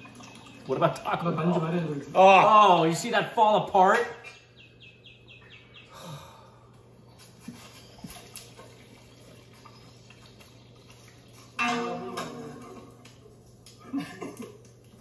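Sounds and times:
low steady hum: 0.0 - 15.0
bird chirps: 4.1 - 6.2.

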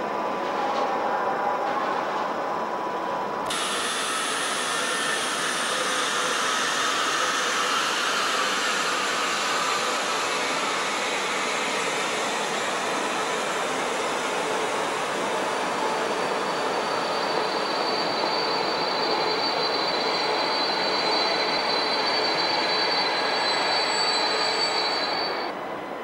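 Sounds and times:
loud steady hiss: 3.5 - 15.8.

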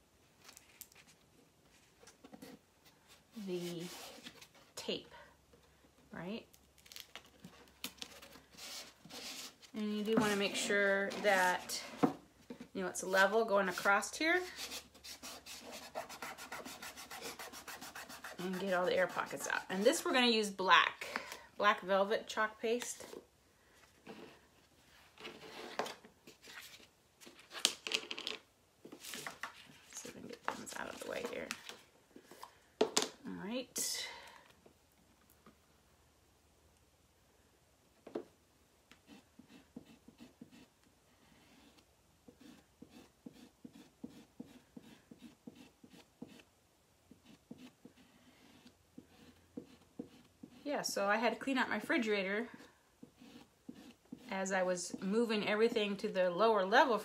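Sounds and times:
squeegee scraping paste on stencil: 13.7 - 19.8, 41.5 - 46.5, 47.1 - 50.7, 53.0 - 54.3.

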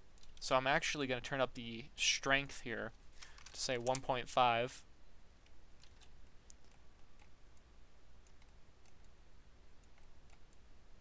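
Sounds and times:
low steady hum: 0.0 - 11.0
computer mouse clicks: 5.4 - 9.2, 9.8 - 10.7.

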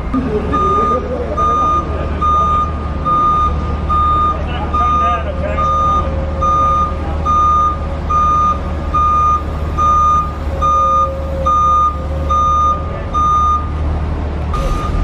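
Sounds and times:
engine humming: 0.0 - 15.0
forklift reversing alarm beeping: 0.5 - 13.8, 14.6 - 15.0.

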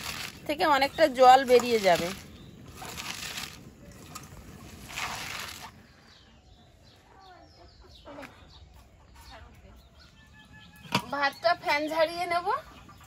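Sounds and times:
small birds chirping: 0.0 - 13.0
hens clucking: 5.7 - 11.2, 12.2 - 13.0.

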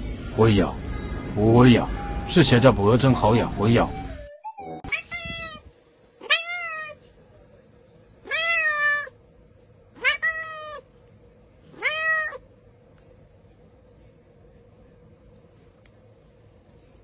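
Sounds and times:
cat meowing: 4.9 - 7.0, 8.2 - 9.2, 10.0 - 10.9, 11.7 - 12.4.

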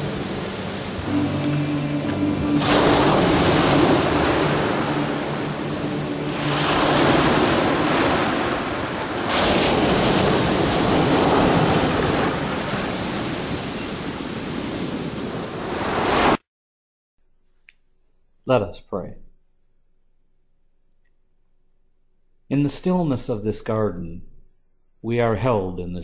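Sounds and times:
small waves breaking on a beach: 2.6 - 16.4.

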